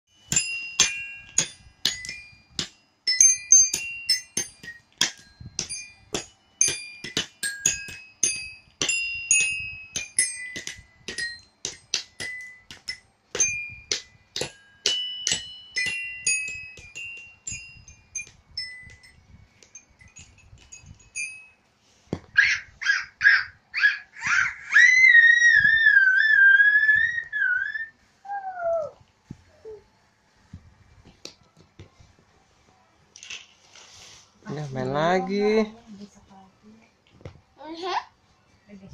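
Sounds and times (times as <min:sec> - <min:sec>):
toy xylophone notes: 0:00.1 - 0:21.6.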